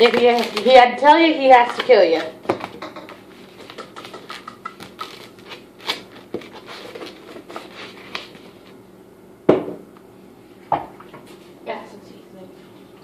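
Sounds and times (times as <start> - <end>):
plastic bag rustling: 0.0 - 2.2.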